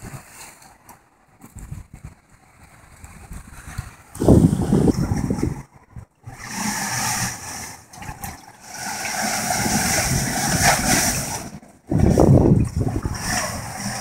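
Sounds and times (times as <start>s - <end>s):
sea water surging in rock hole: 3.2s - 14.0s.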